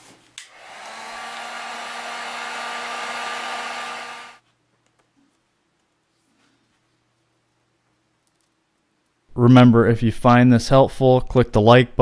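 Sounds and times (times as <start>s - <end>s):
heat gun blowing hot air: 0.4s - 4.4s.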